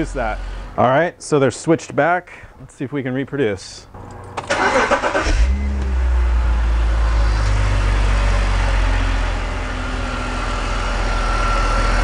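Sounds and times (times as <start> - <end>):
engine starter cranking: 4.0 - 5.9
car engine idling: 4.0 - 12.0.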